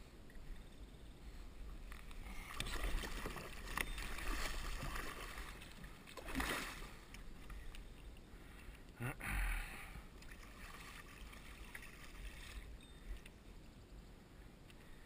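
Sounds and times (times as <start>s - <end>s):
water splashing against kayak hull: 1.8s - 7.8s, 10.1s - 12.7s.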